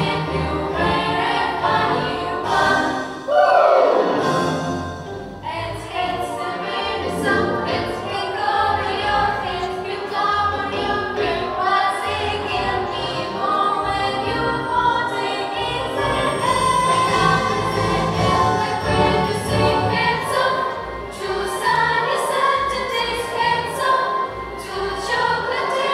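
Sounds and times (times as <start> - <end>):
girls singing together: 0.0 - 4.0, 5.4 - 25.9
instrumental accompaniment: 0.0 - 25.9.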